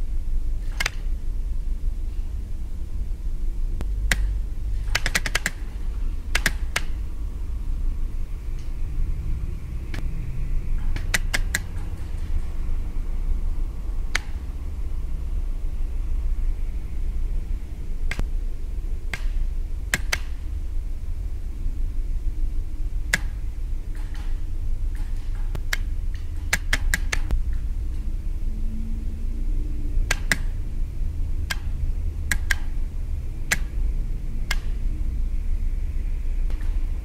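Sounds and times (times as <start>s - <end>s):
low hum: 0.0s - 37.0s
relays clicking: 3.8s - 7.1s.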